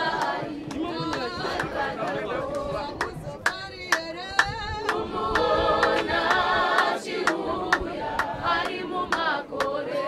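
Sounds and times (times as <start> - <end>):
crowd singing together: 0.0 - 10.0
sharp hand claps: 0.1 - 9.8.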